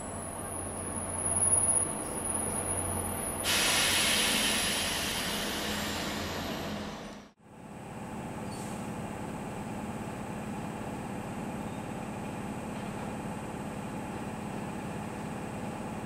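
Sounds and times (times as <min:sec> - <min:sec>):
electric locomotive humming and whining: 0:00.0 - 0:07.4
compressed air hiss: 0:03.4 - 0:07.2.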